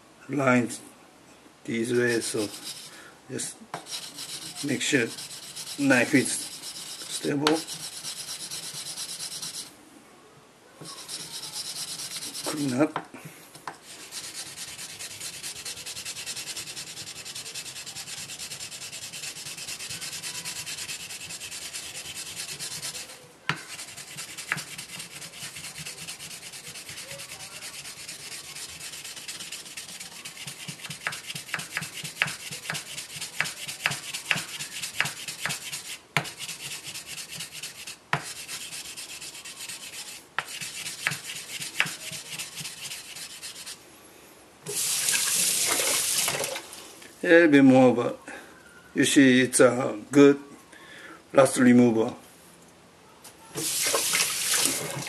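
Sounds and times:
block scrubbing knife blade: 2.1s - 2.9s, 3.8s - 9.7s, 10.8s - 12.8s, 13.9s - 43.8s.

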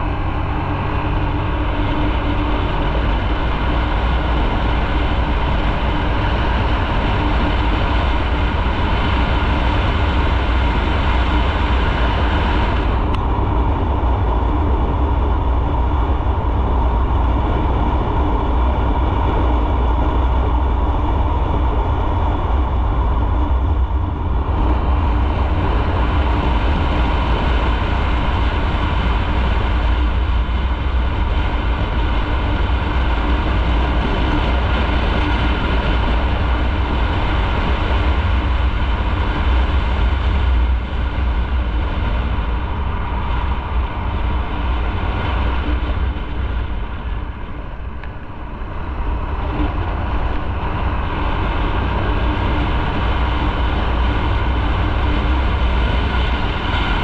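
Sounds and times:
motorcycle engine: 0.0s - 57.0s
wind rushing on microphone: 0.0s - 57.0s.

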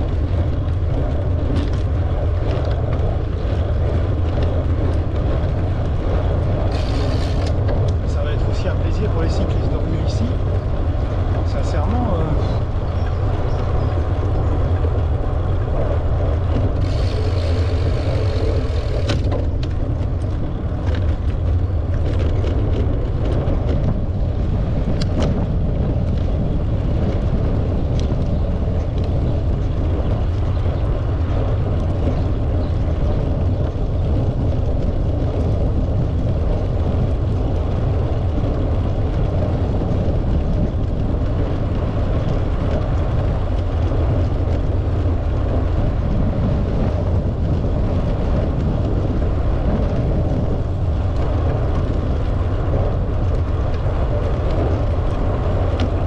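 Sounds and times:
bicycle tyre noise: 0.0s - 56.0s
wind buffeting microphone: 0.0s - 56.0s
scattered clicks: 6.6s - 8.8s, 16.6s - 23.8s.

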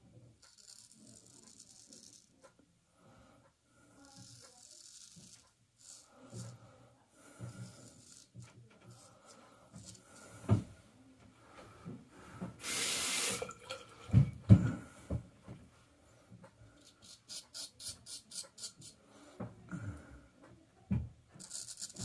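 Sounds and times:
razor scraping stubble: 0.4s - 2.5s, 4.0s - 6.7s, 7.3s - 10.5s, 16.8s - 19.0s, 21.4s - 22.0s
tap water splashing: 12.8s - 14.7s.

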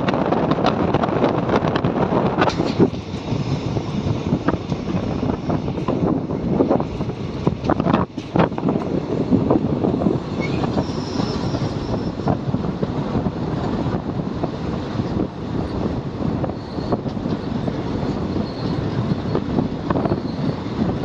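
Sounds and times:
train rumbling on track: 0.0s - 21.0s
faint high squeal: 10.4s - 12.2s, 20.0s - 20.5s.

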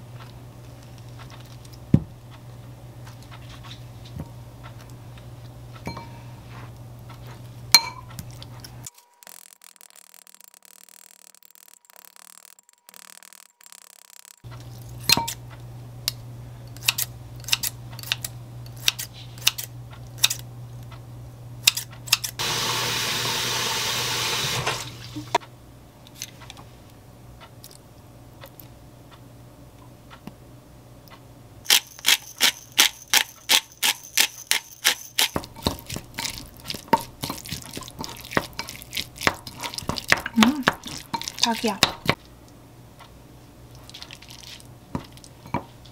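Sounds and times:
low steady hum: 0.0s - 9.0s, 14.4s - 22.4s, 24.9s - 45.9s
fork mashing in glass bowl: 31.7s - 42.2s
spatula stirring clicking against bowl: 31.7s - 42.2s.

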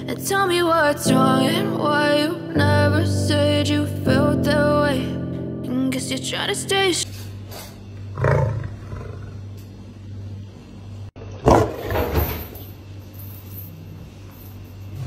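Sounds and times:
steady low hum: 6.7s - 15.0s
lion roaring: 8.1s - 9.5s, 11.4s - 12.0s.

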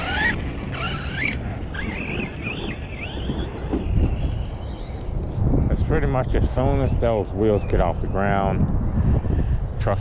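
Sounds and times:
electric motor whining: 0.0s - 5.4s.

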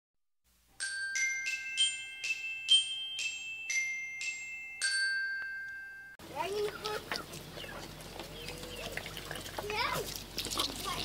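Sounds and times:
bell-like jingle melody: 0.8s - 6.2s.

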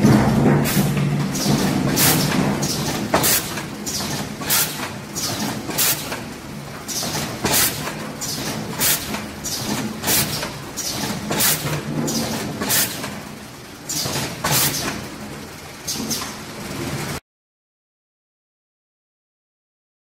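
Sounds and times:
sharp machine bursts: 0.0s - 6.3s, 6.9s - 13.1s
machine hum: 0.0s - 17.2s.

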